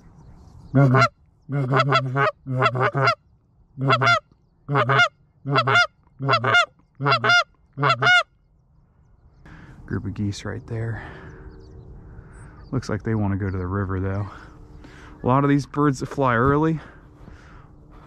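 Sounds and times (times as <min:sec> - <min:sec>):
goose call honks and clucks: 0:00.7 - 0:03.2, 0:03.8 - 0:08.3.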